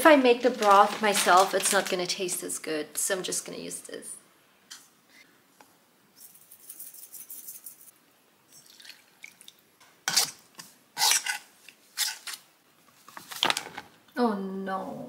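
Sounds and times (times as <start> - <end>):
soft pouring hiss: 7.4 - 9.8.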